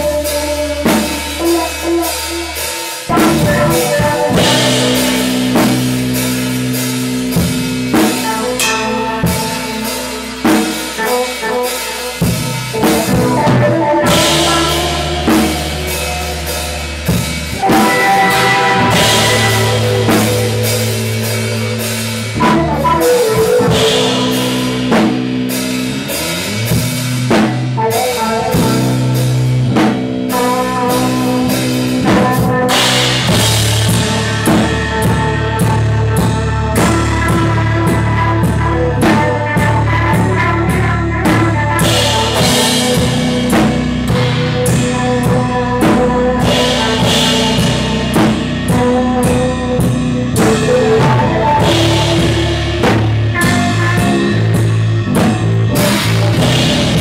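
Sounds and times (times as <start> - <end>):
rock band playing: 0.0 - 57.0
cymbal crashes: 2.5 - 13.2, 14.0 - 27.8, 32.7 - 37.1.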